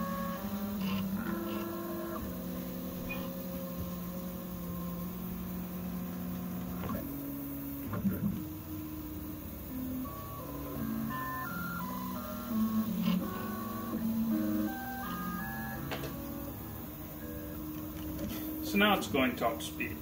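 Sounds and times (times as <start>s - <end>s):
stepper motors whining: 0.0s - 20.0s.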